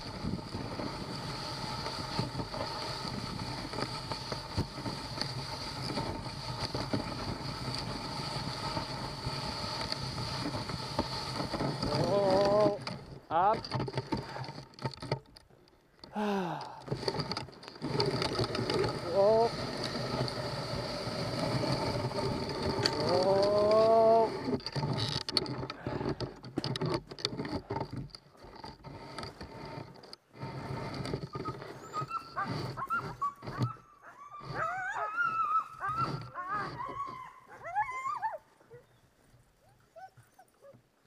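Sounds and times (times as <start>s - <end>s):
sled dogs whining and yipping: 0.4s - 12.9s, 16.9s - 25.0s, 31.0s - 41.0s.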